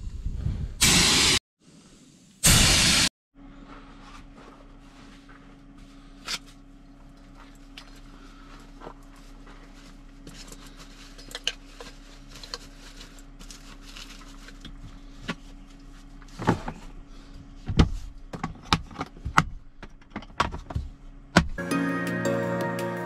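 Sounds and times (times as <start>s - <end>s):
steady low hum: 3.4s - 21.6s.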